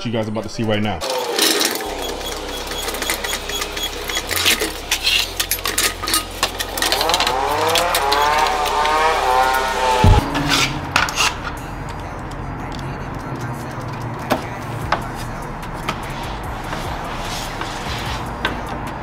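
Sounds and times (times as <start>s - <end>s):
power drill driving screws: 1.0s - 11.2s.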